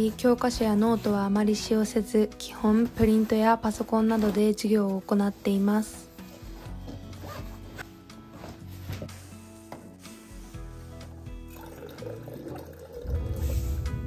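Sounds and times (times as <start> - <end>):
background music: 0.0 - 14.0
liquid running from dispenser: 11.5 - 13.5.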